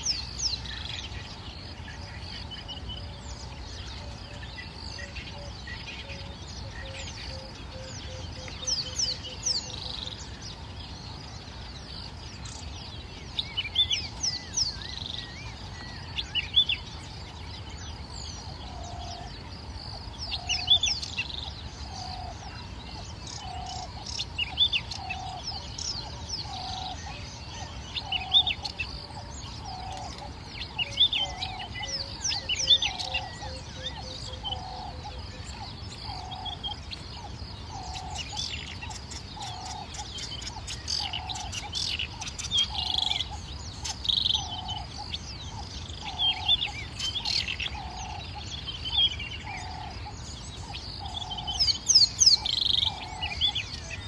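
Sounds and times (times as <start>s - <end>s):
birds chirping and whistling: 0.0s - 54.0s.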